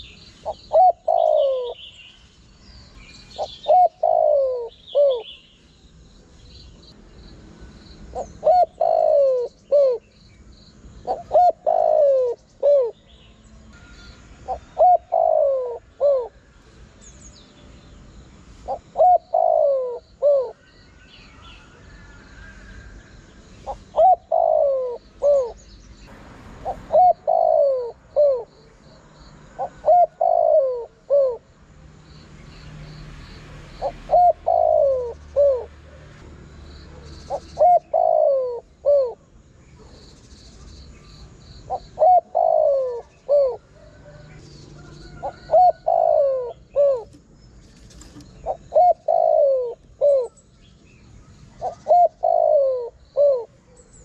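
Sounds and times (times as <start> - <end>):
dove cooing: 0.0 - 1.9, 3.4 - 5.4, 8.1 - 10.1, 11.0 - 13.1, 13.8 - 16.4, 18.6 - 20.6, 23.6 - 25.6, 26.6 - 28.6, 29.5 - 31.5, 33.8 - 36.2, 36.9 - 40.0, 41.7 - 50.5, 51.5 - 54.0.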